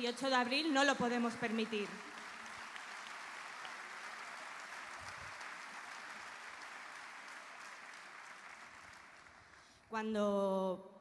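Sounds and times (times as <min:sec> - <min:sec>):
audience applauding: 0:01.6 - 0:09.8.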